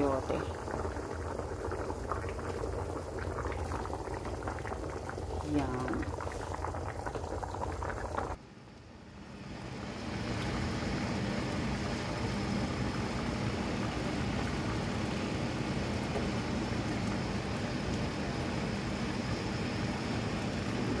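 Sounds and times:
soup boiling in a pot: 0.0 - 21.0.

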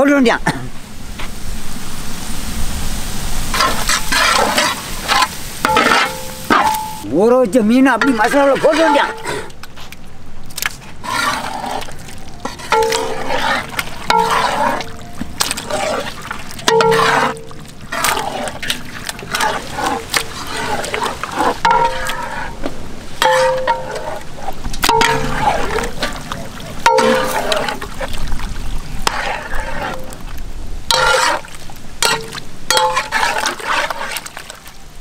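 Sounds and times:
ladle knocking metal pot: 16.6 - 17.5, 21.7 - 22.4, 23.2 - 24.2, 24.8 - 26.2, 26.8 - 27.8, 32.0 - 33.3.

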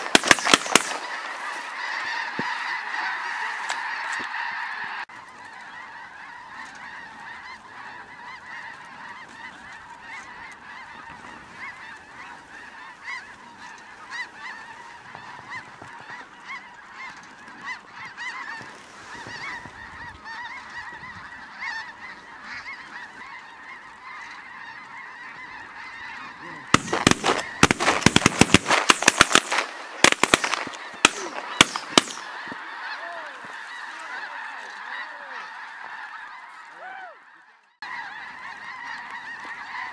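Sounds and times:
loud sharp cracks: 0.0 - 1.2, 26.8 - 32.4
geese honking: 0.0 - 39.9.

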